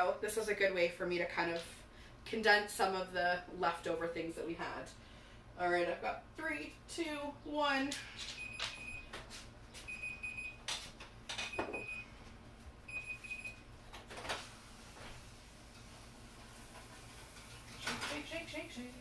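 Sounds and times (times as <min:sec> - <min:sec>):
oven timer beeping: 0:09.9 - 0:10.6, 0:11.5 - 0:12.1, 0:12.9 - 0:13.6.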